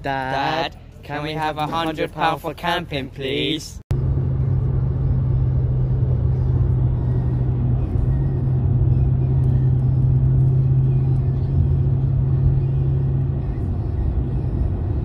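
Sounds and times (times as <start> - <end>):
car interior drone at speed: 3.9 - 15.0.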